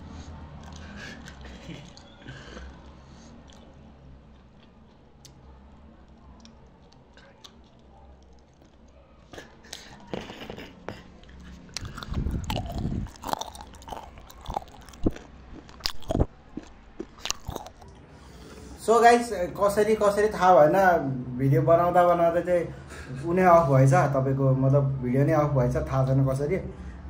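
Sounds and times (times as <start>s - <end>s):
person chewing food: 0.0s - 18.8s
wet mouth clicks and smacks: 0.6s - 5.4s, 6.4s - 18.0s.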